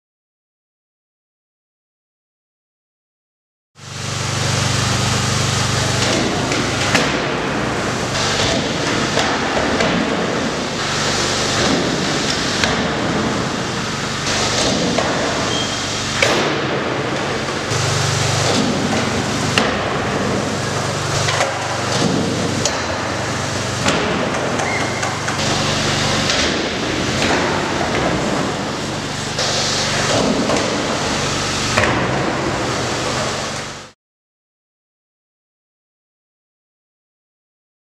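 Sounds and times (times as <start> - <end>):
steady low hum: 3.8 - 34.0.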